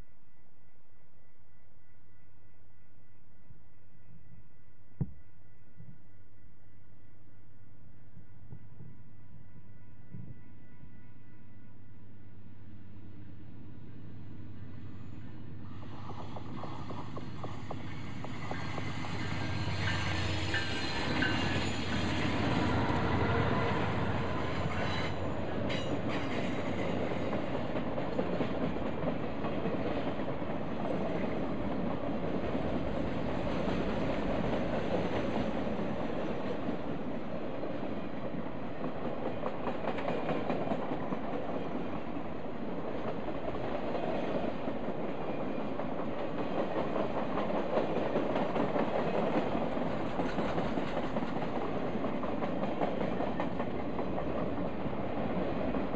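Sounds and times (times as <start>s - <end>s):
diesel locomotive passing: 8.8s - 55.9s
train rolling rumble: 13.1s - 55.9s.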